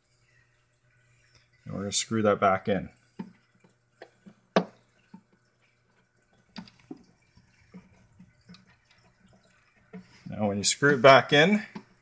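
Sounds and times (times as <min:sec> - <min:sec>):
screw eye tapping plastic hull: 0:03.2 - 0:05.5, 0:06.4 - 0:10.2, 0:11.7 - 0:12.0.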